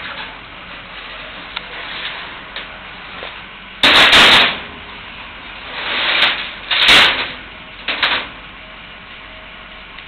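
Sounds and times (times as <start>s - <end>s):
building scraping and hissing: 5.6s - 7.3s.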